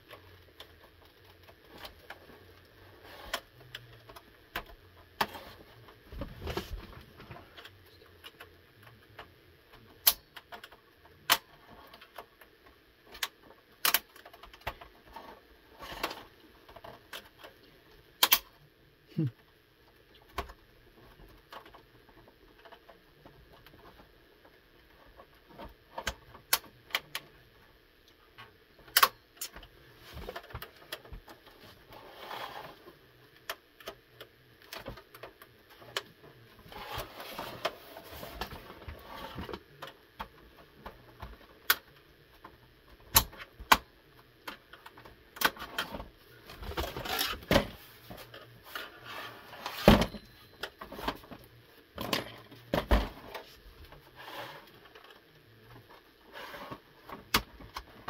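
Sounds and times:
plastic rubbing: 0.0 - 12.6, 29.8 - 43.9, 44.5 - 58.0
plastic clicks and snaps: 7.6 - 12.3, 13.1 - 14.8, 18.2 - 18.6.

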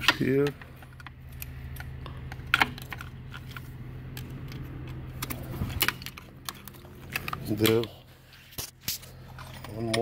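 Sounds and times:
steady low hum: 0.0 - 10.0
plastic clips clicking and rattling: 0.1 - 7.9.

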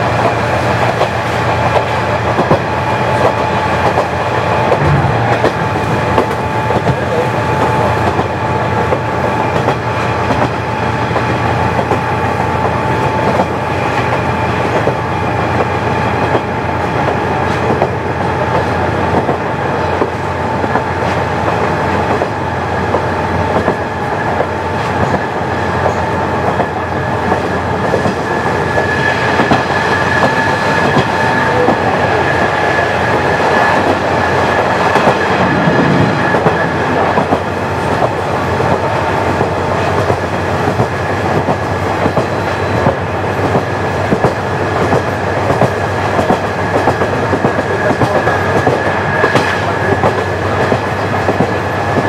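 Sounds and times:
diesel railcar engine running: 0.0 - 52.0
higher whine: 4.6 - 7.0, 28.2 - 38.5.

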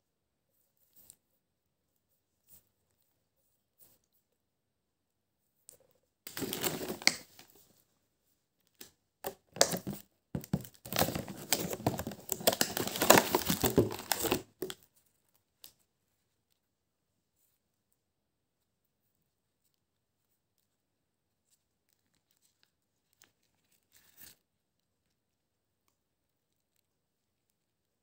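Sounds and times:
plastic container crinkling: 6.3 - 7.6, 9.2 - 14.8.

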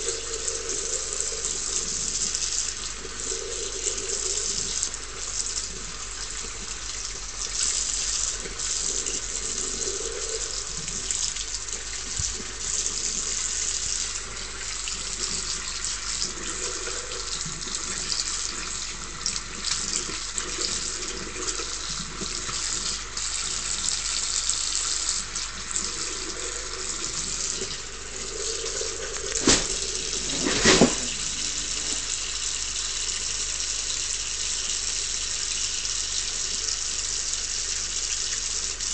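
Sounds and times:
tap running into washbasin: 10.5 - 38.9.

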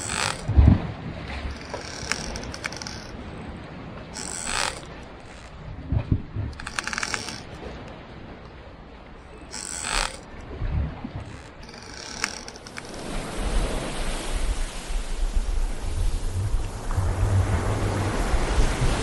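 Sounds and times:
hissing sea wash: 0.0 - 0.6, 11.2 - 19.0
wooden timbers creaking: 0.0 - 7.8, 9.2 - 13.1.

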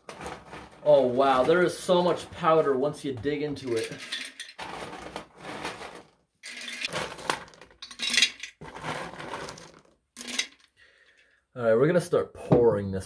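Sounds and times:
hard candies rattling: 3.6 - 11.2.

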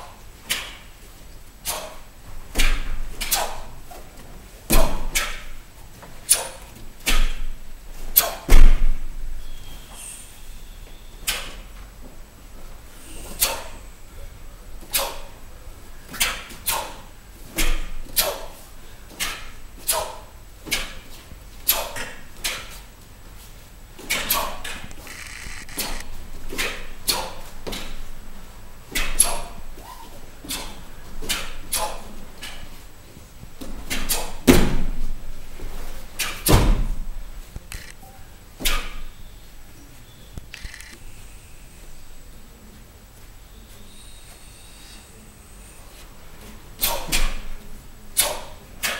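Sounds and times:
uniform snapping: 1.6 - 2.0
feet thudding on foam mats: 1.7 - 9.1, 33.5 - 37.6.

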